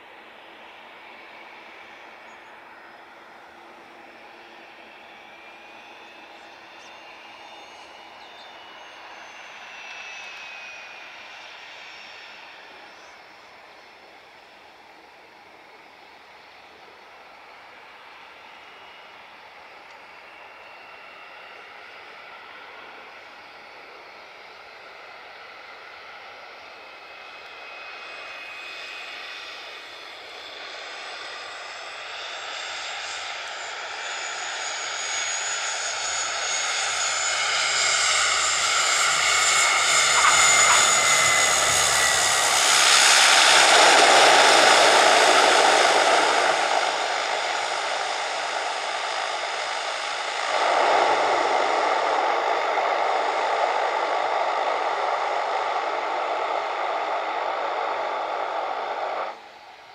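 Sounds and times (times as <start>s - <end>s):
high turbine whine: 0.0s - 59.9s
turboprop engines: 0.0s - 59.9s
propeller noise: 27.2s - 59.7s.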